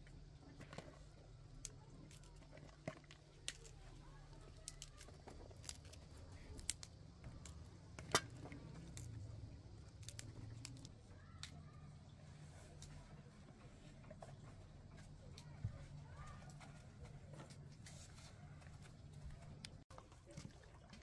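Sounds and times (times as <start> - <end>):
cauliflower florets snapping: 4.6 - 7.6, 9.9 - 11.6.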